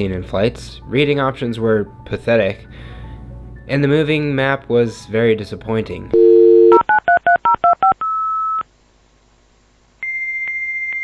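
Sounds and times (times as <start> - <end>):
dial tone: 6.2 - 6.9.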